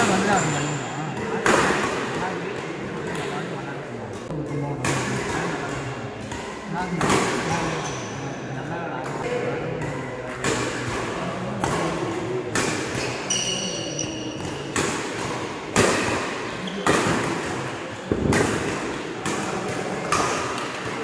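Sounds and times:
rackets hitting shuttlecock: 9.0 - 21.0
shoe squeak on court: 13.0 - 14.7.

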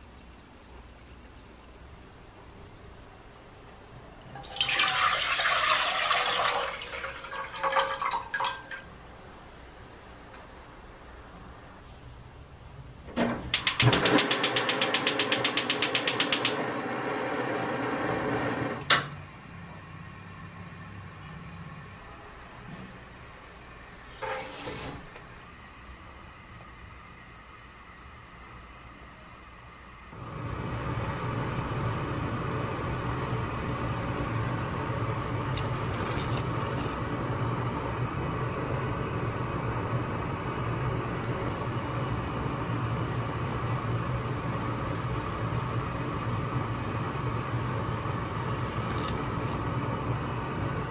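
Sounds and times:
water boiling and bubbling: 4.4 - 9.0, 30.2 - 50.9
sharp click: 13.2 - 16.6
gas hissing: 13.2 - 19.1, 30.1 - 50.9
igniter clicking rapidly: 13.5 - 16.6
flame hissing: 13.7 - 18.9, 30.1 - 50.9.

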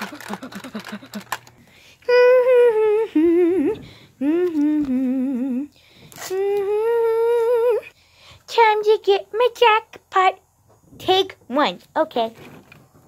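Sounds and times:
high-pitched voice humming: 2.0 - 7.9.

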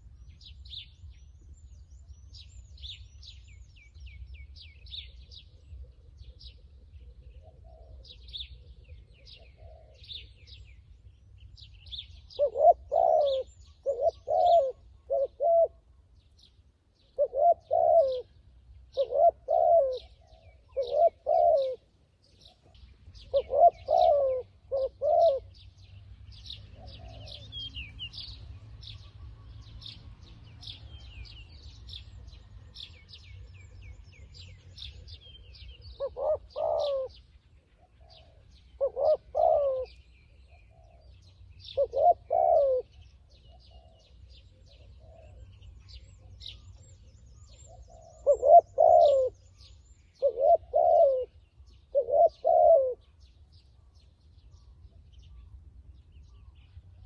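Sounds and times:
small birds chirping: 0.0 - 57.0
dove cooing: 5.0 - 10.7, 11.9 - 15.9, 17.0 - 25.7, 26.4 - 28.2, 32.2 - 46.7, 47.4 - 49.6, 50.2 - 53.2.

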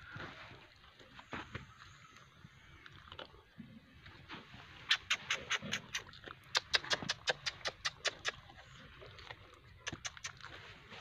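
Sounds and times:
animal mouth smacking clicks: 4.9 - 8.5, 9.8 - 10.5.

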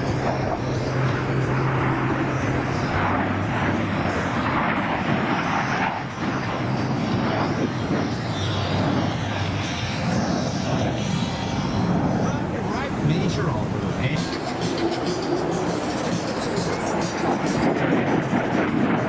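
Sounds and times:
jet engine noise: 0.0 - 19.0
low hum: 0.0 - 19.0.

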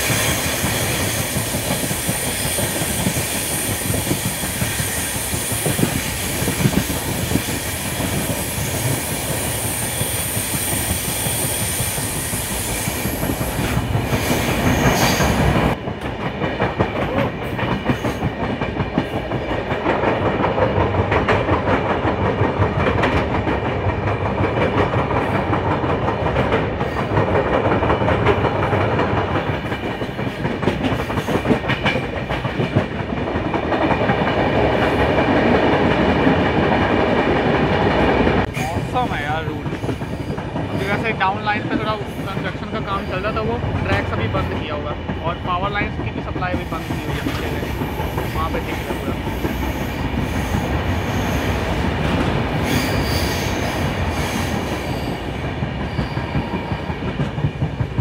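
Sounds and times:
high squeal and hiss: 0.0 - 7.6, 8.2 - 15.4, 52.6 - 55.2
train rumbling on rails: 0.0 - 58.0.

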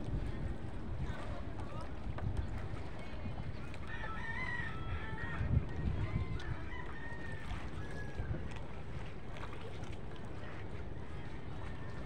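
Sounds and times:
steady low rumble: 0.0 - 3.7.

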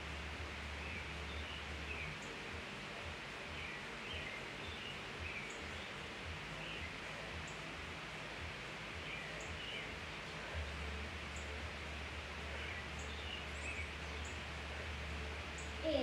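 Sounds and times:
steady background hiss: 0.0 - 16.0
faint bird chirps: 3.5 - 7.7.

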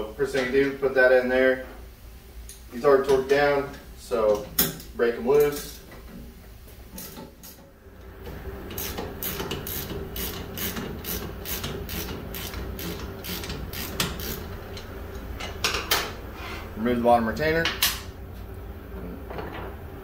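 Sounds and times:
ratchet wrench clicking: 8.7 - 14.8.

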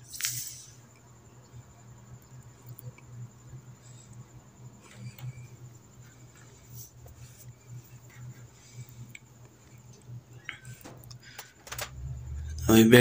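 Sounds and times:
steady low hum: 0.0 - 13.0
faint scratching: 4.8 - 11.5.

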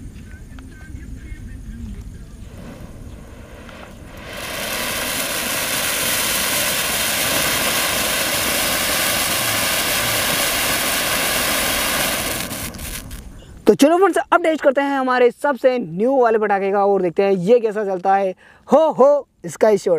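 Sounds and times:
ground fountain firework hissing: 0.5 - 13.6.

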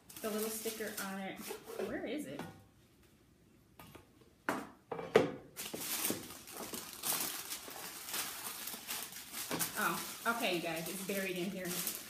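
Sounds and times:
tissue paper rustling: 0.0 - 1.7, 5.6 - 12.0.

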